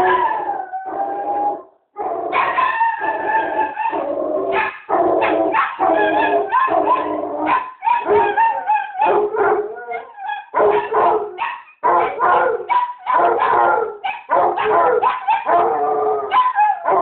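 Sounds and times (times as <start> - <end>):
dogs barking and howling: 0.0 - 17.0.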